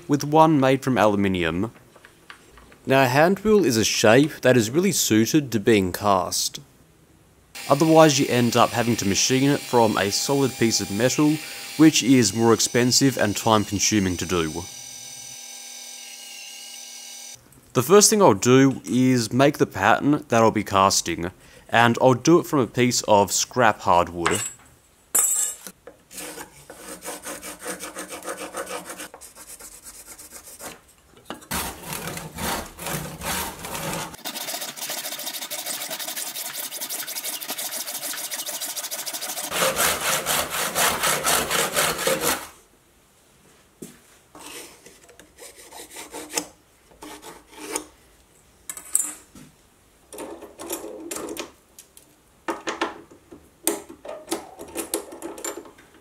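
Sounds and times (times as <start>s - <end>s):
hand saw cutting wood: 26.1s - 30.8s, 31.5s - 42.5s, 45.4s - 47.9s
pencil scratching along ruler: 26.1s - 30.8s, 31.5s - 42.5s.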